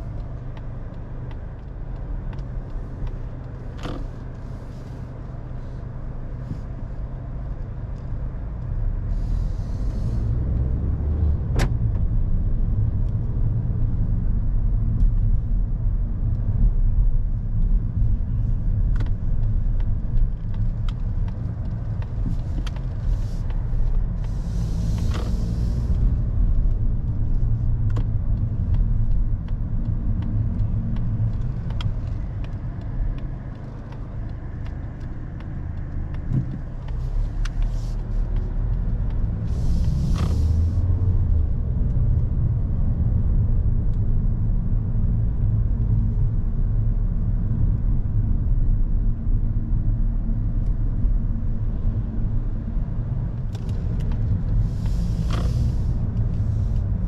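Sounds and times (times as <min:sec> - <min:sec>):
car engine and road noise: 0:00.0 - 0:57.0.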